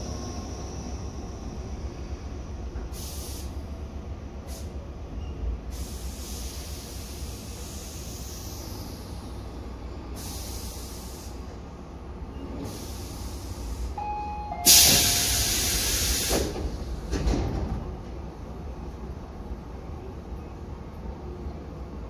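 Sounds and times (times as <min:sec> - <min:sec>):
air hissing from train: 0:00.0 - 0:17.8
train rumbling: 0:00.0 - 0:22.0
short beeps: 0:14.0 - 0:15.6.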